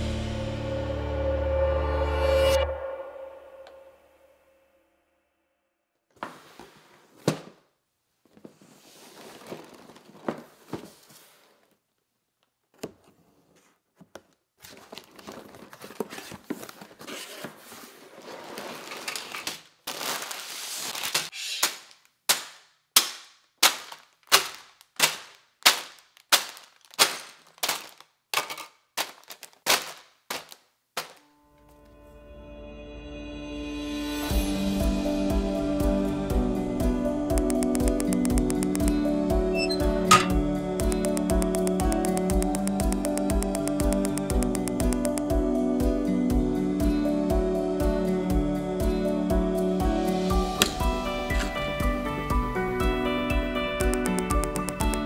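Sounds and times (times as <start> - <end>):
plastic bags crinkling: 18.4 - 21.3, 23.7 - 31.3
bags thudding on a table: 23.6 - 31.2.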